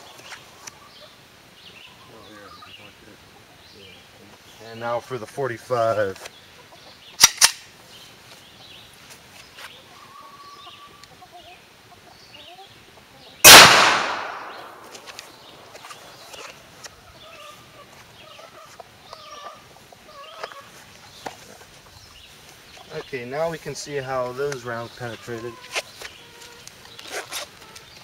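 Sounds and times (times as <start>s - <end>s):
pistol shot: 13.4s - 15.2s.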